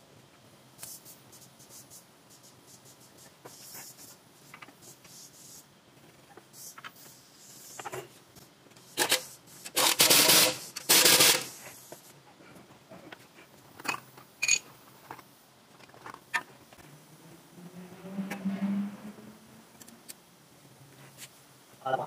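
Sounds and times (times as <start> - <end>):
pneumatic impact wrench bursts: 8.9 - 11.9.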